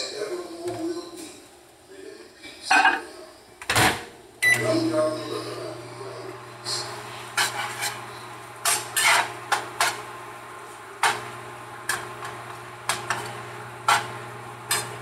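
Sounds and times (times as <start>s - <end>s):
microwave oven humming: 3.2s - 15.0s.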